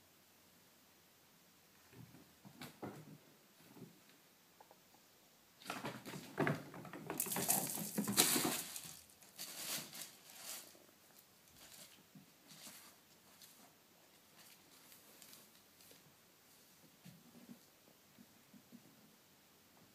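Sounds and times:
kittens scuffling under fabric: 7.3 - 16.0.

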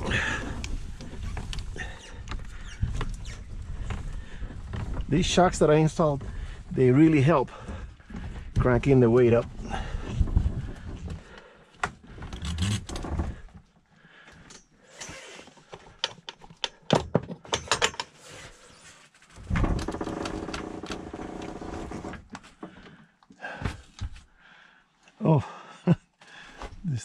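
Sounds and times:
knocks clicks and rattles: 15.7 - 18.2, 19.4 - 22.8.

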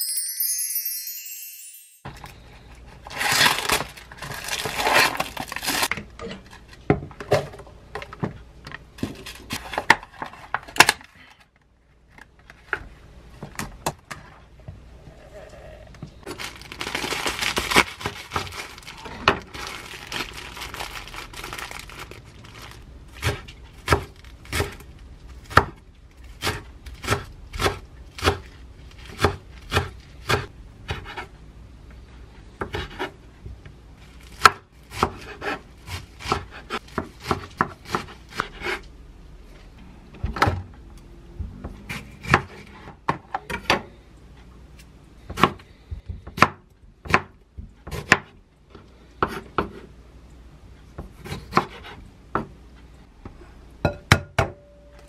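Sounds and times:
plastic wrapper crinkling: 3.1 - 5.9, 16.3 - 22.9
knife chopping on wooden board: 34.4 - 38.8, 51.0 - 52.5.

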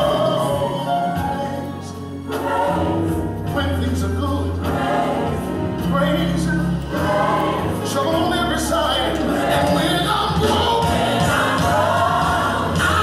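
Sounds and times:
choir singing gospel: 0.0 - 13.0.

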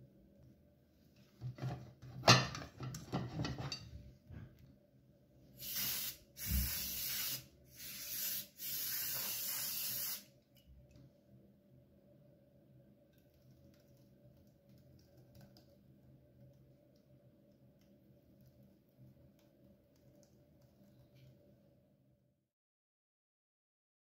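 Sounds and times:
aerosol spray can hissing: 5.6 - 10.3.

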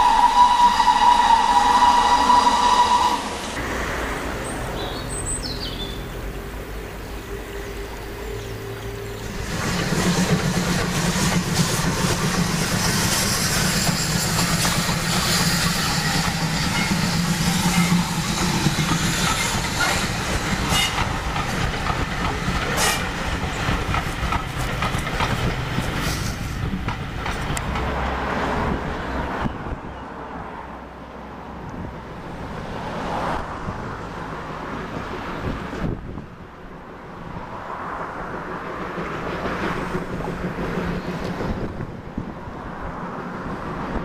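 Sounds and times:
distant steam locomotive working: 0.0 - 4.8, 5.8 - 28.5, 37.4 - 42.8
train wheels clicking over rail joints: 8.8 - 28.6, 38.2 - 42.3.

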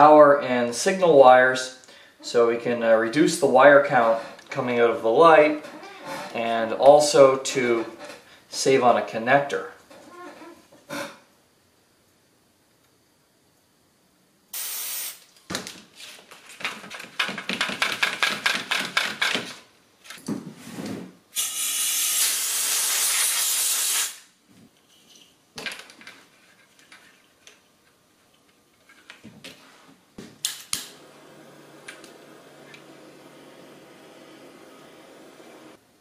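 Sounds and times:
aerosol can spraying: 14.6 - 15.2, 21.4 - 24.2.

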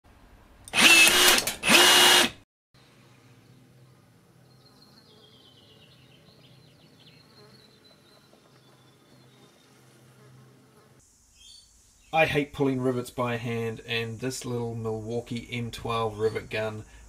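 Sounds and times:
rivet tool motor whirring: 0.7 - 2.4
insects buzzing: 3.3 - 17.0.

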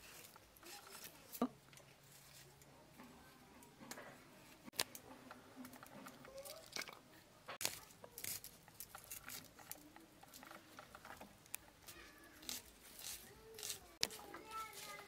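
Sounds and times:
shallots being sliced: 12.4 - 15.0.

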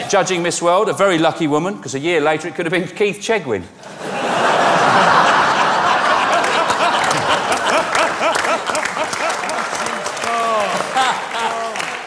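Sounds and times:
audience laughing: 3.8 - 12.0
people clapping: 4.8 - 12.0.

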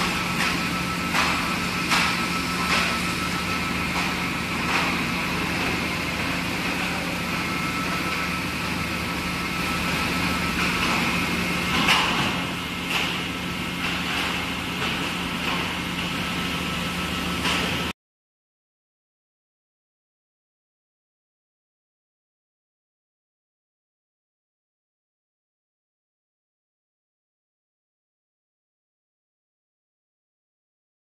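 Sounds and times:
dishwasher hum: 0.0 - 17.9
high whine: 0.0 - 18.0.

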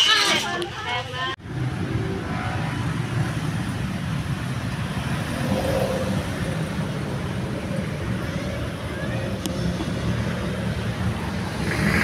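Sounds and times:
road traffic rumble: 0.0 - 12.0.

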